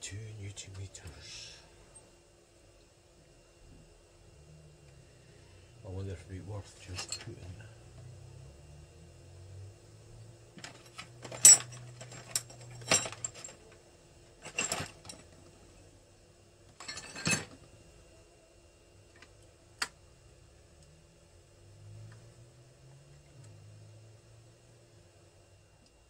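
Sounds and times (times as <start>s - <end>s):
faint steady hum: 0.0s - 26.0s
metal tools clinking on workbench: 6.9s - 7.4s, 10.6s - 13.7s, 14.4s - 15.4s, 16.8s - 17.6s.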